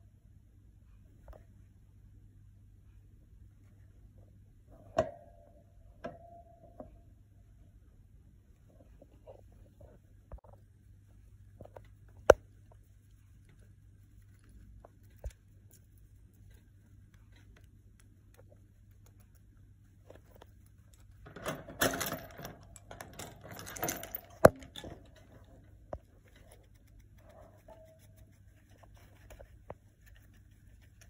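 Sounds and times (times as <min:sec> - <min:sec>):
faint steady hum: 0:00.0 - 0:31.0
rustling and clattering at wire cage: 0:19.2 - 0:31.0.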